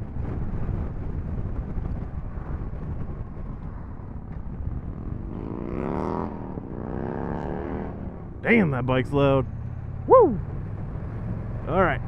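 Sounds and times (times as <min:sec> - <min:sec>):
wind buffeting microphone: 0:00.0 - 0:09.0
motorcycle engine rumble: 0:00.0 - 0:12.0.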